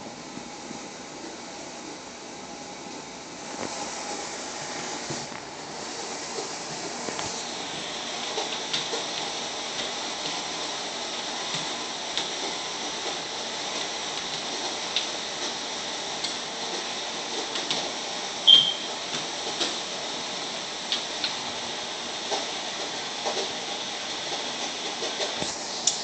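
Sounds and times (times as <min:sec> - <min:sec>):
room noise hiss: 0:00.0 - 0:26.0
short high chirp: 0:18.5 - 0:18.9.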